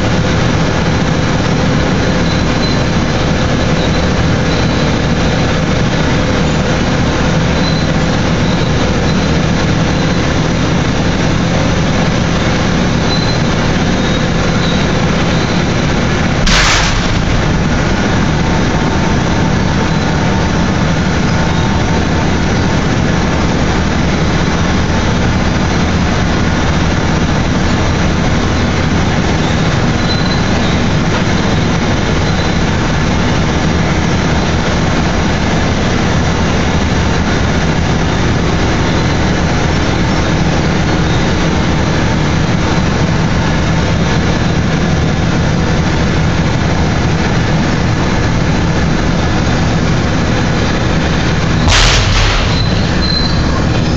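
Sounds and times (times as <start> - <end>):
heavy machinery rumbling: 0.0 - 53.9
sharp knock: 16.4 - 17.6, 51.7 - 53.4.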